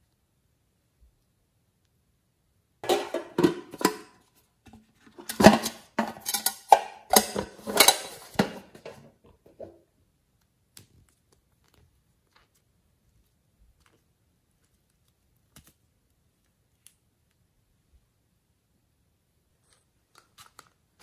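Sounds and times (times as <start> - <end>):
hard plastic objects clattering: 2.8 - 9.8.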